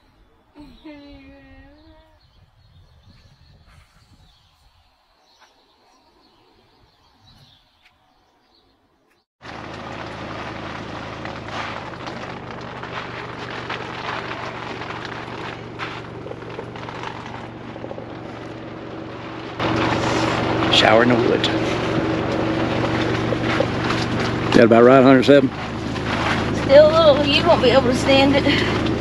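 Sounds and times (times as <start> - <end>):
water heater humming and hissing: 9.5 - 29.0.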